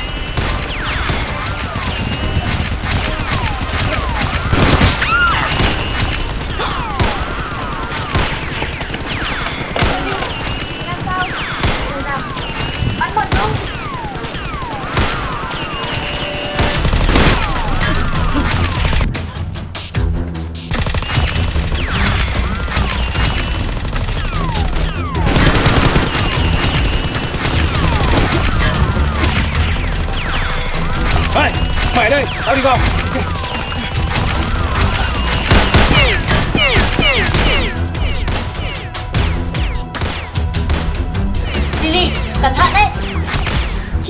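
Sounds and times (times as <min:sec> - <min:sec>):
whistling ricochets: 0:00.0 - 0:06.3, 0:25.7 - 0:38.9
gunfire sound effects: 0:00.0 - 0:19.2, 0:20.7 - 0:41.0.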